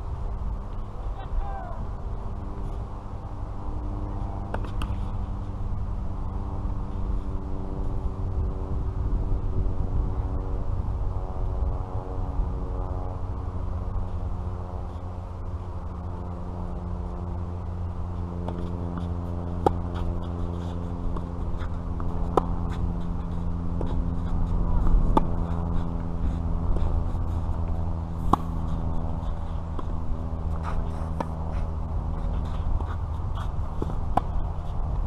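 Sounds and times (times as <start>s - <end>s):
steady low hum: 0.0s - 35.0s
tennis ball struck by rackets: 4.5s - 5.1s, 18.4s - 34.7s
ball bounces: 18.4s - 34.5s.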